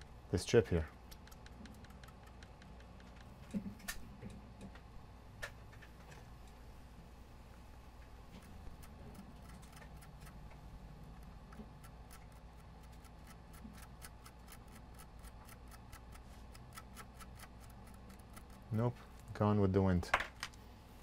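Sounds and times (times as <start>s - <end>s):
tweezers clicking on a chip: 1.1s - 3.3s, 11.2s - 18.7s.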